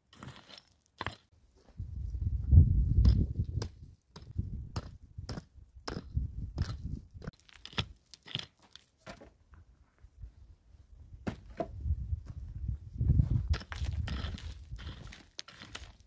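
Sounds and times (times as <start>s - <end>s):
hatchet digging gravelly soil: 0.0s - 1.4s, 2.9s - 9.0s, 13.3s - 16.0s.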